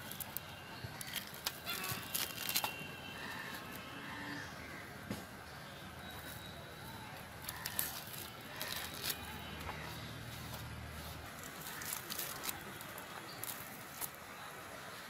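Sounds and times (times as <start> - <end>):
fruit rind tearing by hand: 0.0 - 2.8, 7.4 - 9.8, 11.2 - 14.2.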